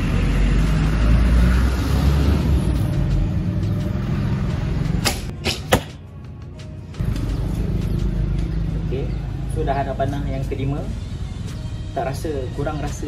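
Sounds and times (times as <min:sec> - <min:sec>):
bowstring snap: 0:05.0 - 0:06.0.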